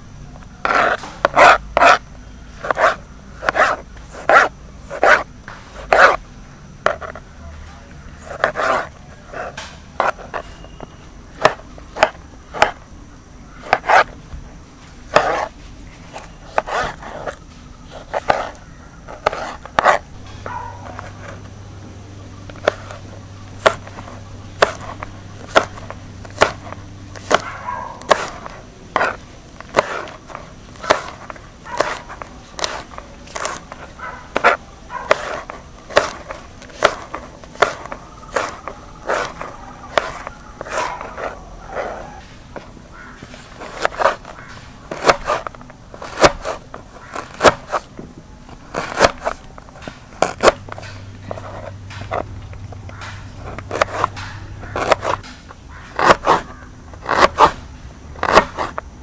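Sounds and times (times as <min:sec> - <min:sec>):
knife chopping on wooden board: 0:02.6 - 0:05.2, 0:15.1 - 0:15.5, 0:23.6 - 0:47.9, 0:48.7 - 0:55.4, 0:56.0 - 0:57.6, 0:58.2 - 0:58.8.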